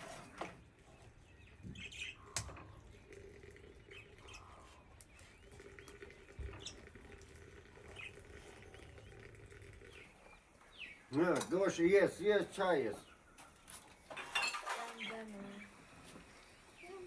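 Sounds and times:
birds chirping: 0.0 - 17.0
hot water trickling into teapot: 2.1 - 10.8.

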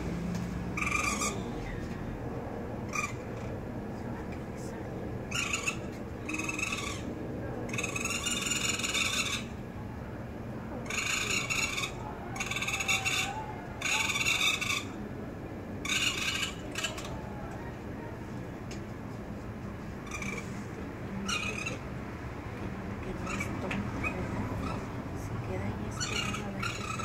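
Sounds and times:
raccoon kits crying: 0.8 - 1.5, 5.3 - 9.6, 10.8 - 15.0, 15.8 - 17.6, 20.0 - 20.5, 21.2 - 21.8, 25.9 - 27.0.

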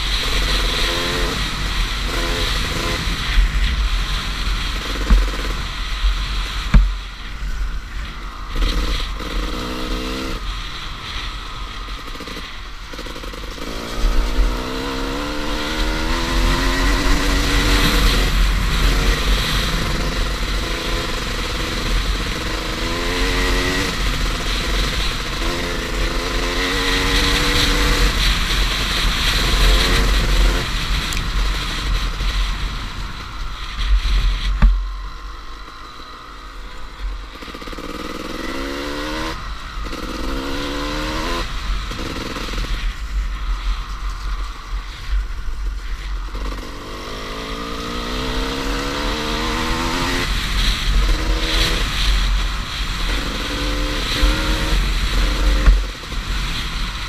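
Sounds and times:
motorcycle engine revving: 0.0 - 57.0
bike knocking on bumps: 4.8 - 5.6, 6.5 - 7.0, 34.4 - 34.8.

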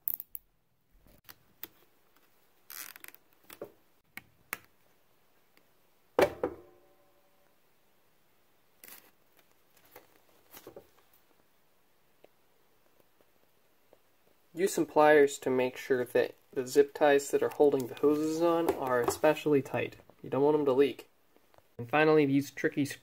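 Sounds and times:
hands handling wiring and hoses: 8.8 - 11.5, 17.3 - 19.4.

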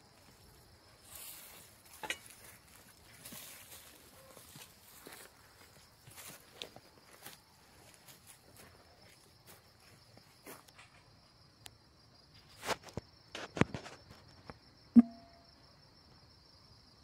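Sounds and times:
high insect drone: 0.0 - 10.6
footsteps on sandy grassy ground: 0.1 - 10.8.

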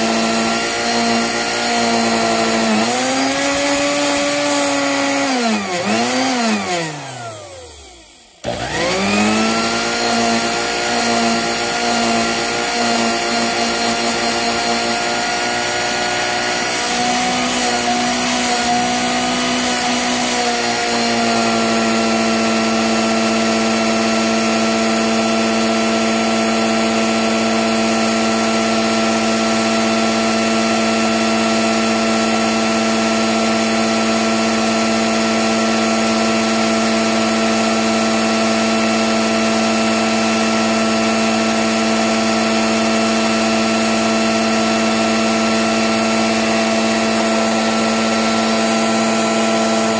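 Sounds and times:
small motor humming: 1.9 - 15.0.

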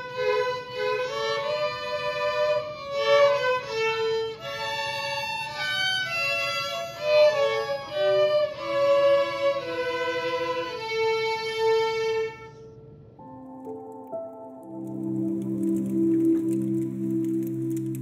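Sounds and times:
violins playing a tune: 0.0 - 12.6.

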